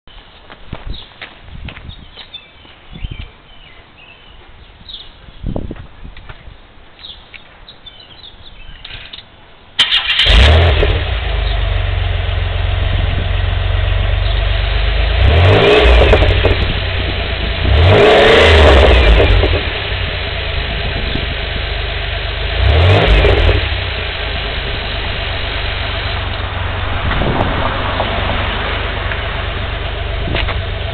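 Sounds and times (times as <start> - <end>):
car engine idling and revving: 9.8 - 30.9
car engine starting: 9.8 - 30.9.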